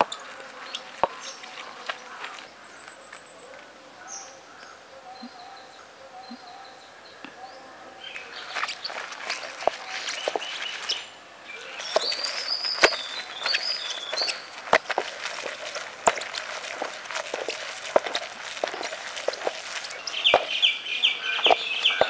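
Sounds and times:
birds chirping: 0.0 - 22.0
clicks of stone on stone: 8.5 - 11.0, 11.8 - 20.7, 21.4 - 22.0
stone grinding and crunching: 8.5 - 11.0, 11.7 - 20.7, 21.4 - 22.0.

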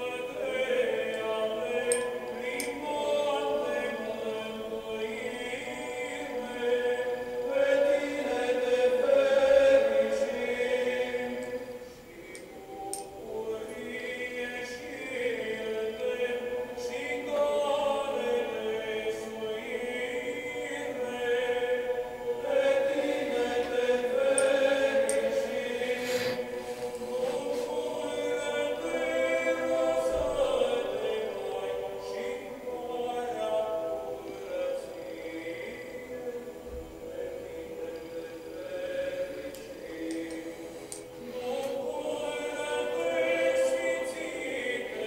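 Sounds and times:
choir singing slow lines: 0.0 - 45.0.

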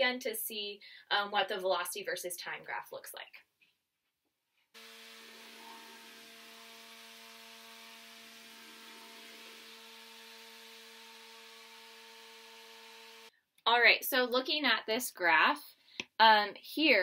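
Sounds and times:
electric fan whirring: 4.8 - 13.3.

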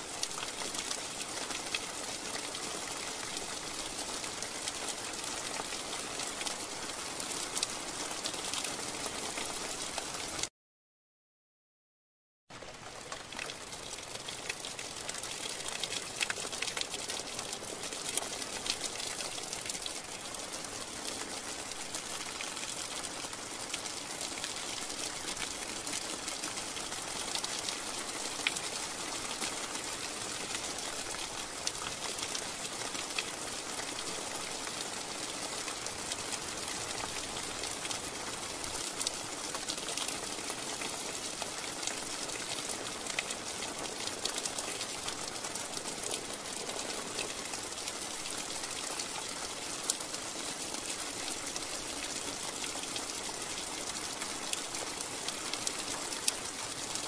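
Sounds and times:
steady rain hiss: 0.0 - 10.4, 12.6 - 57.0
raindrop ticks: 12.7 - 21.4, 22.2 - 57.0.

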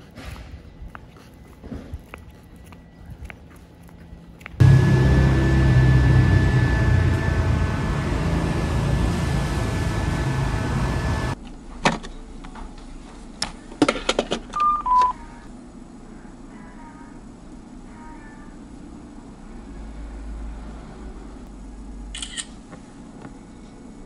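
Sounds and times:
electric fan motor whine: 4.6 - 11.4
short beeps: 14.6 - 15.2.

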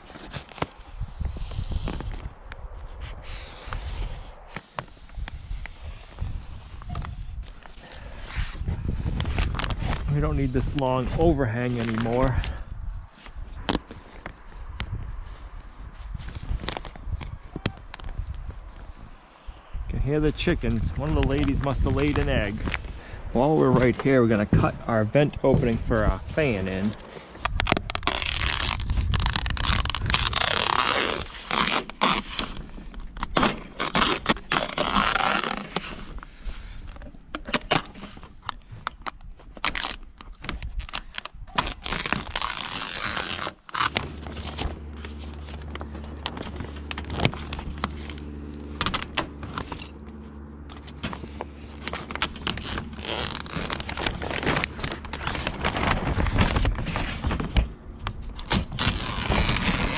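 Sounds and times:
plastic film crackling: 27.3 - 36.0, 39.0 - 49.6, 50.8 - 59.9
knife cutting plastic film: 27.4 - 36.1, 39.6 - 45.7, 50.9 - 57.5, 58.2 - 59.9
steady low hum: 41.9 - 59.9.

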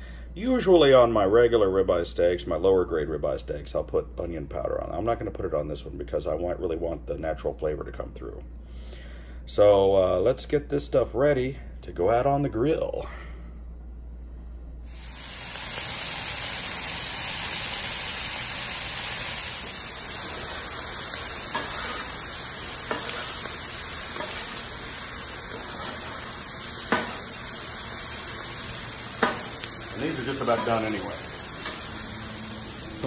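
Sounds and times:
vegetables sizzling on a griddle: 14.8 - 33.0.

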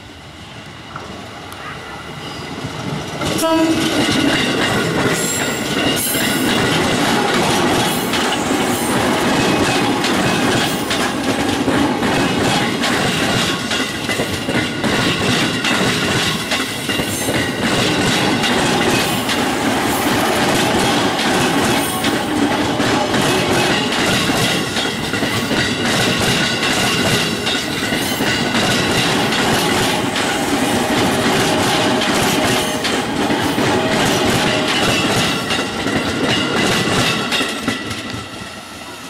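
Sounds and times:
train wheels clattering on rails: 2.5 - 38.8
train horn blast: 3.4 - 4.0.

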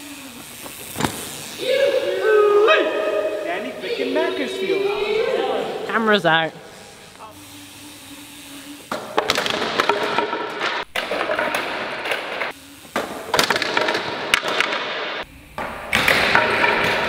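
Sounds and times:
bike scraping across stage floor: 0.0 - 1.9
metal and tyres knocking boards: 9.0 - 12.0.

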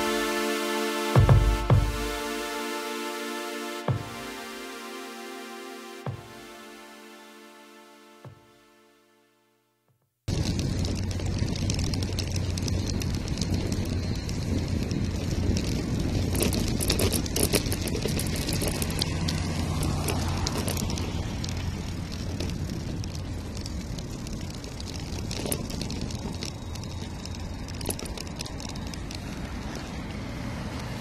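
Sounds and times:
small clicks and rattles: 10.3 - 29.9
bicycle tyre and wind noise: 10.3 - 31.0
road traffic hum: 10.3 - 31.0.

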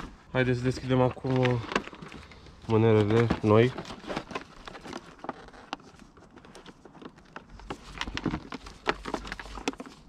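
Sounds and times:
packaging rustling and crinkling: 0.0 - 10.0.

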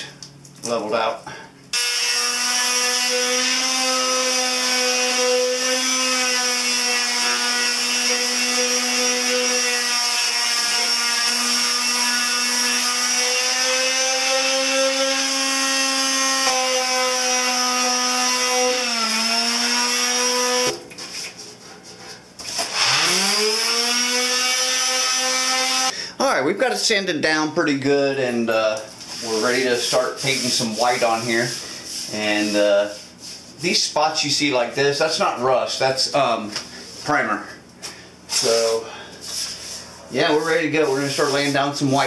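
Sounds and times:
electric sander sanding metal: 1.8 - 20.8, 22.7 - 25.9.

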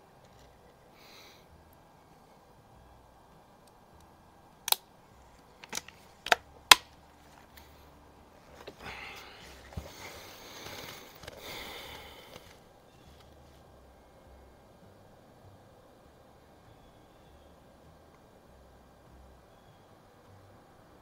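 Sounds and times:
rustling handling noise: 5.2 - 13.7.

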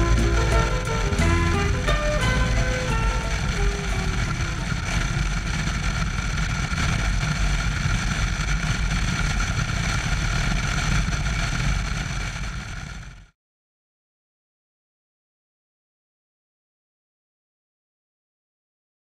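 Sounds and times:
faint whining tones: 0.0 - 7.4
motorcycle engine rumble: 0.0 - 13.3
road noise: 0.0 - 13.3
rushing wind: 0.0 - 13.3.

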